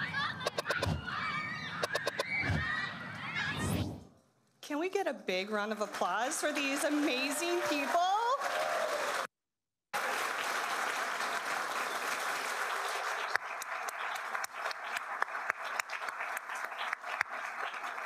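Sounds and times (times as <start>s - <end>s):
audience applauding: 5.8s - 9.3s, 9.9s - 18.0s.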